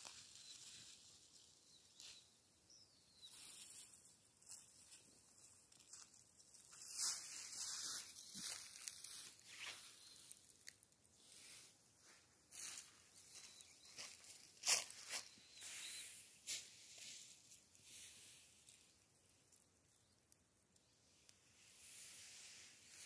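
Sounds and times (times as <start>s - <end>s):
footsteps on dry leaves: 3.4s - 19.0s.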